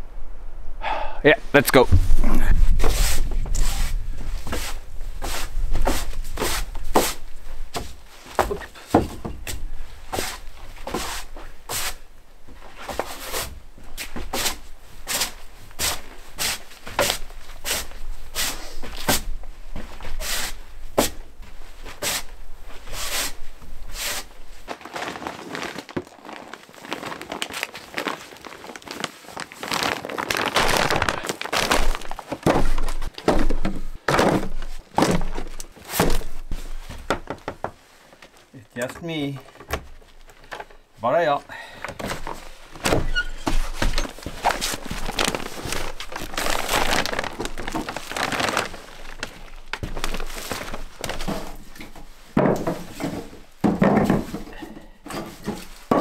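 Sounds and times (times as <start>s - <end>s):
rustling of things handled: 1.6s - 56.0s
thuds: 1.9s - 2.2s, 30.7s - 37.8s.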